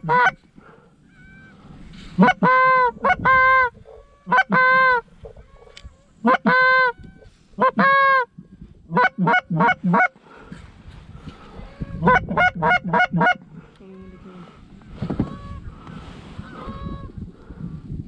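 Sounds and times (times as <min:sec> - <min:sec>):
goose honking: 0:00.0 - 0:00.4, 0:02.2 - 0:08.3, 0:08.9 - 0:10.1, 0:11.8 - 0:14.4.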